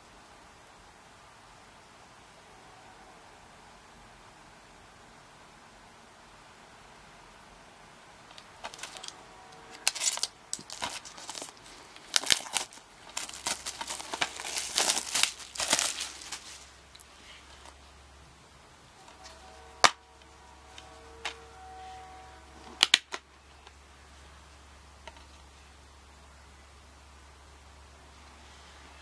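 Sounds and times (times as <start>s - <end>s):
cellophane crinkling and tearing: 8.3s - 17.7s.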